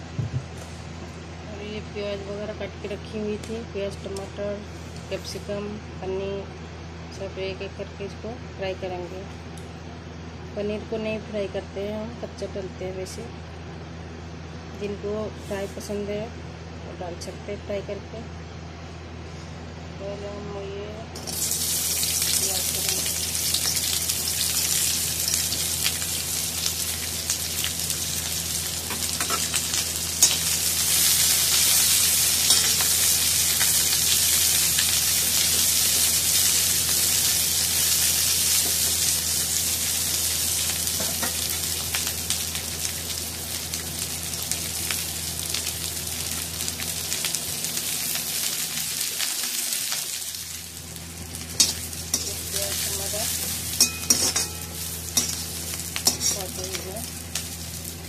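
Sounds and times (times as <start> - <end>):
onions sizzling in hot oil: 21.2 - 58.0.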